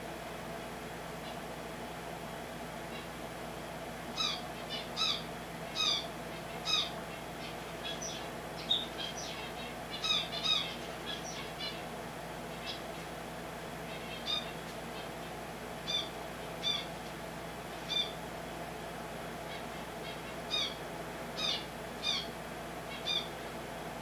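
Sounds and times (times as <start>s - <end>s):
steady low hum: 0.0s - 24.0s
finches chirping: 4.2s - 11.9s, 13.9s - 15.2s, 15.8s - 16.9s, 17.9s - 18.2s, 19.5s - 20.8s, 21.4s - 22.3s, 22.9s - 23.4s.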